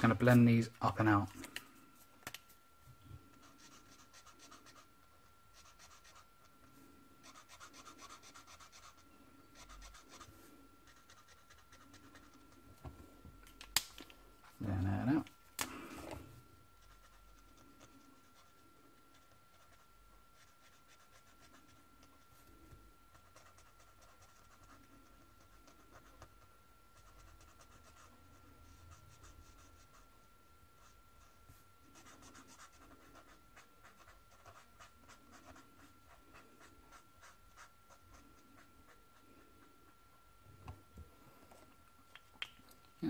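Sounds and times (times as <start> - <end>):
marker scratching on paper: 7.2 - 9.0.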